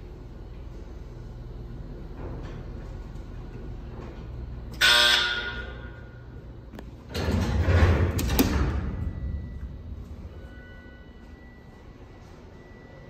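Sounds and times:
elevator ringing tone: 0:04.7 - 0:06.5, 0:08.4 - 0:13.0.

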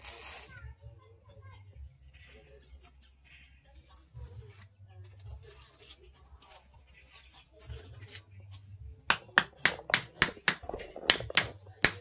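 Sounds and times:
sharp knocks on wooden handle: 0:09.1 - 0:12.0.

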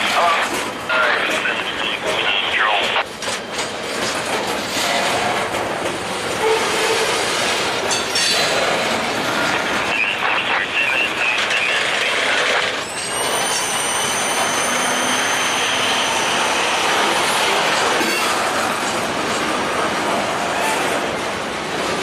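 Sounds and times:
train wheels clattering on rails: 0:00.0 - 0:09.9, 0:11.4 - 0:22.0
train wheel squeal: 0:06.4 - 0:07.3, 0:12.5 - 0:18.4.

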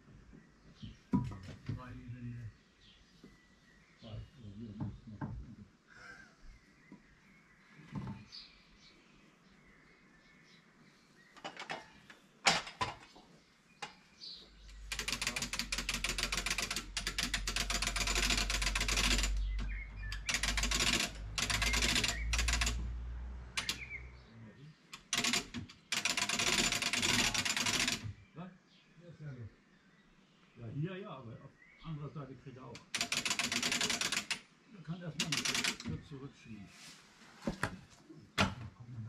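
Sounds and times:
machine mechanical clatter: 0:14.8 - 0:24.0, 0:25.0 - 0:28.0, 0:32.8 - 0:34.4, 0:35.2 - 0:35.9.

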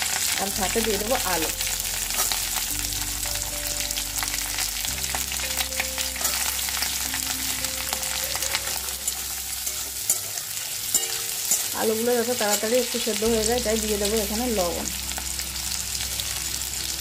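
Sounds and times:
potatoes sizzling in oil: 0:00.0 - 0:17.0
metal spatula scraping pan: 0:08.3 - 0:12.8.

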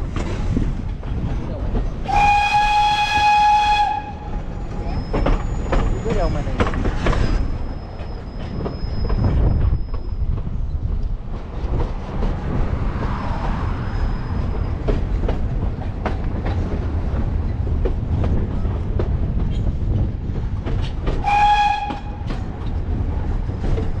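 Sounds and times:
steam train rumbling: 0:00.0 - 0:24.0
wheels clacking on track: 0:00.0 - 0:24.0
steam whistle blast: 0:02.1 - 0:04.3, 0:21.2 - 0:22.3.

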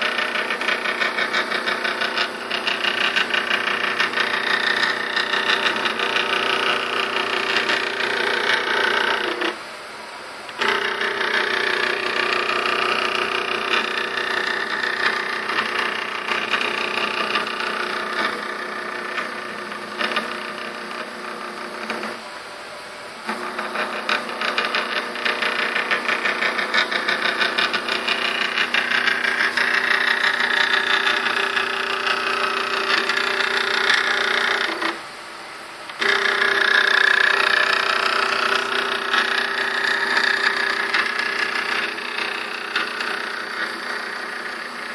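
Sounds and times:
stepper motor whining: 0:23.2 - 0:35.0, 0:35.9 - 0:44.9.

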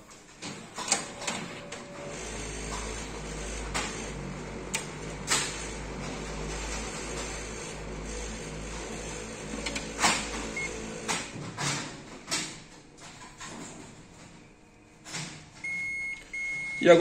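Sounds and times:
copier running hum: 0:00.0 - 0:17.0
mechanical clunks and clicks: 0:00.2 - 0:14.4
short beep: 0:15.6 - 0:16.9.

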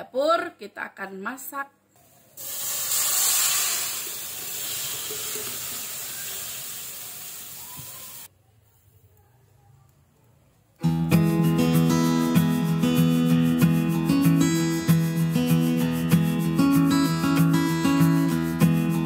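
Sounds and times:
spice paste sizzling in wok: 0:02.0 - 0:08.3
acoustic guitar music: 0:10.8 - 0:19.0.

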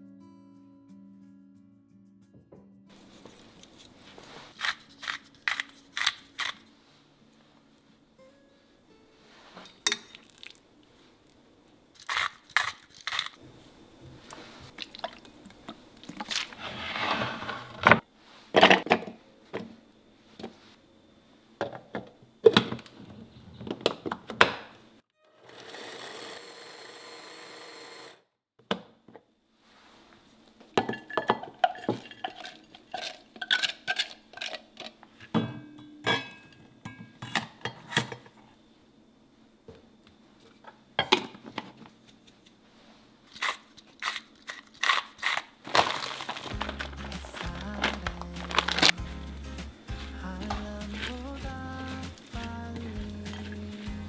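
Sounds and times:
electric mini chopper running: 0:25.4 - 0:28.2.

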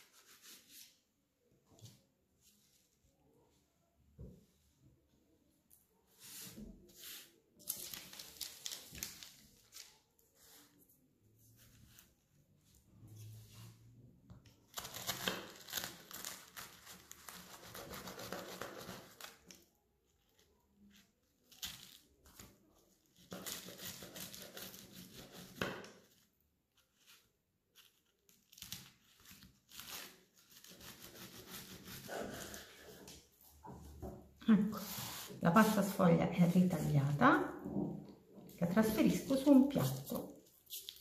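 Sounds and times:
paper crinkling: 0:07.2 - 0:10.7, 0:14.7 - 0:25.4, 0:39.0 - 0:41.0
knife cutting crisp pastry: 0:14.7 - 0:19.6, 0:20.9 - 0:26.2, 0:26.8 - 0:33.0.

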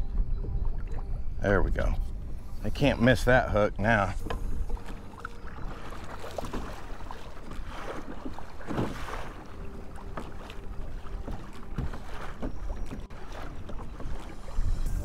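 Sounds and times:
water splashing against kayak hull: 0:03.8 - 0:15.0
wind rumbling on microphone: 0:10.8 - 0:15.0.

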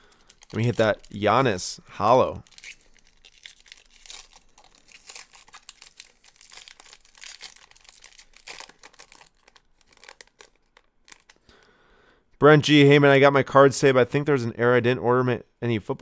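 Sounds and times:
plastic packaging crinkling: 0:00.0 - 0:11.6.

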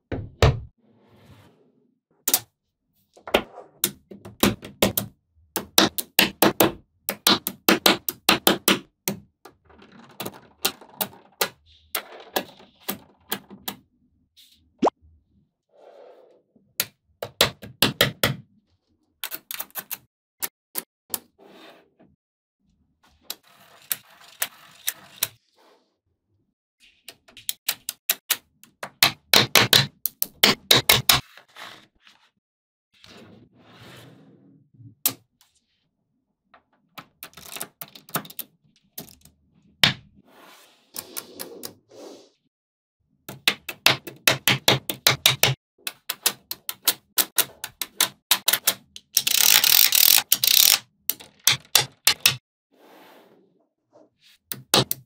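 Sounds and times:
magnetic balls clicking together: 0:44.9 - 0:52.4.

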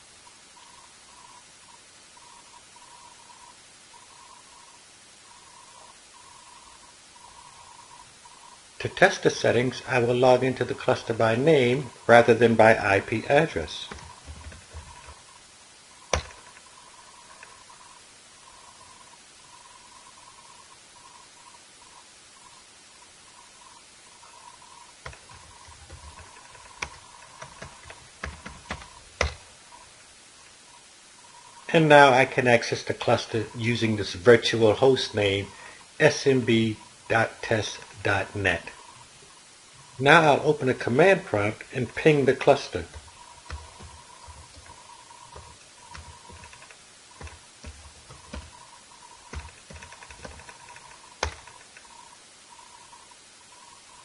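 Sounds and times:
keyboard key clicks: 0:16.1 - 0:16.4.

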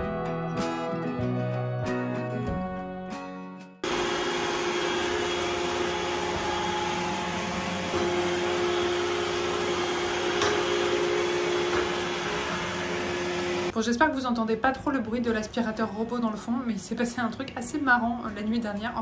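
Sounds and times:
background music: 0:00.0 - 0:03.8.

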